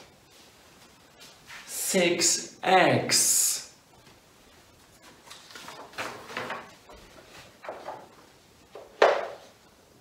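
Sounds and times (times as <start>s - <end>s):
paper card rustling: 5.0s - 8.0s.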